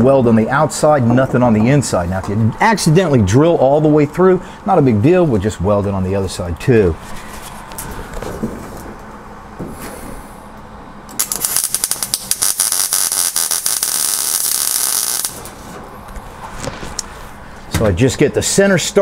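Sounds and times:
welding arc crackling and sizzling: 11.1s - 15.7s.

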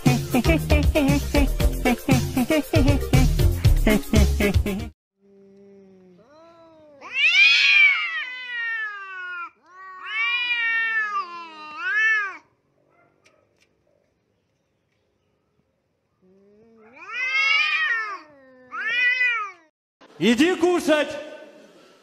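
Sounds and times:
cats yowling: 6.2s - 12.6s, 16.7s - 19.7s.

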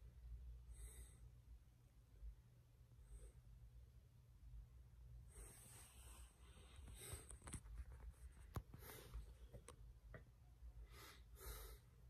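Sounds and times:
soft scratchy rustles: 5.3s - 9.7s.

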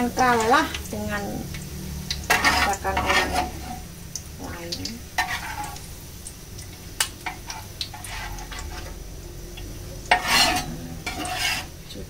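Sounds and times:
spatula scraping frying pan: 0.0s - 1.0s, 2.1s - 3.9s, 5.1s - 6.0s, 7.2s - 9.1s, 9.7s - 11.9s.

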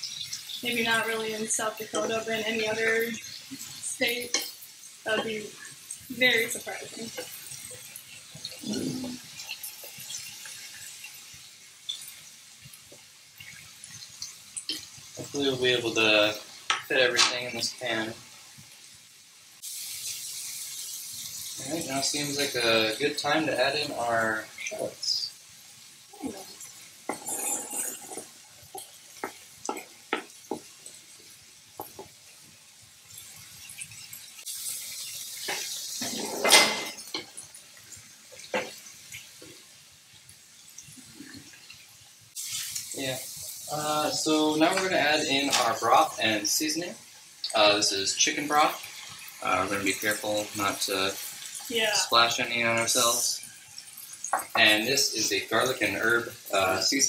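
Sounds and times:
food sizzling in a frying pan: 0.0s - 57.0s
knife scraping cutting board: 27.1s - 28.3s
wooden spoon stirring: 27.1s - 30.7s.

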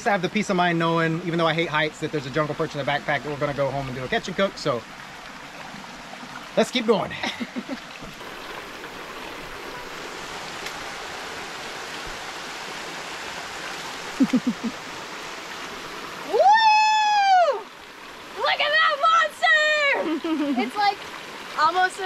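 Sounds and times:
waterfall and stream rushing: 0.0s - 22.0s
woman whooping: 14.2s - 14.8s, 16.2s - 17.7s, 18.5s - 20.2s.

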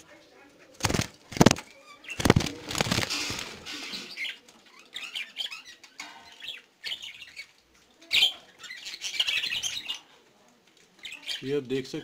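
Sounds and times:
budgerigars chirping and chattering: 0.6s - 10.1s, 11.0s - 12.0s
loud rustle: 2.2s - 3.9s.

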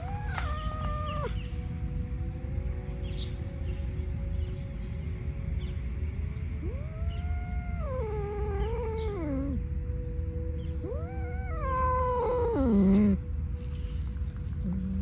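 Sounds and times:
cat meowing: 0.0s - 1.5s, 6.6s - 9.6s, 10.8s - 13.2s.

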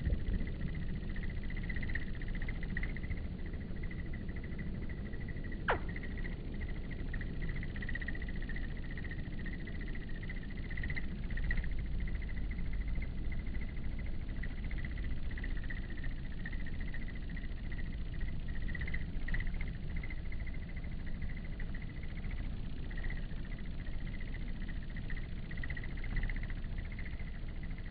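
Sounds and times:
low rumble: 0.0s - 16.0s
pulsing insect trill: 0.0s - 27.9s.

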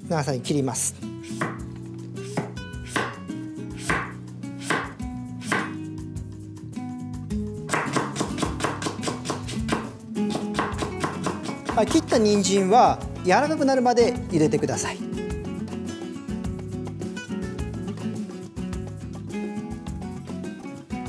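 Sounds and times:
knife cutting carrot on board: 1.2s - 5.8s, 7.7s - 12.4s.

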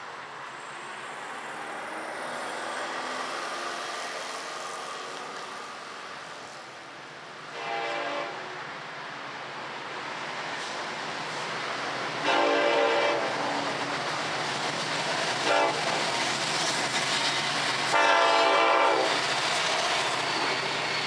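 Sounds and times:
distant diesel locomotive horn: 7.5s - 8.6s, 12.2s - 13.4s, 15.4s - 16.0s, 17.9s - 19.2s.

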